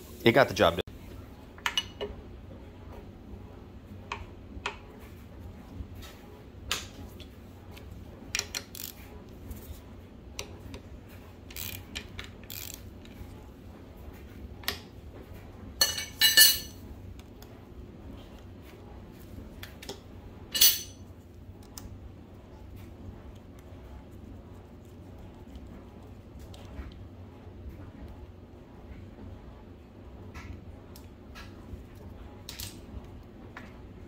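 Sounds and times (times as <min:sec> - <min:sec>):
steel wrenches clinking on metal: 0:15.8 - 0:16.7, 0:20.6 - 0:21.0.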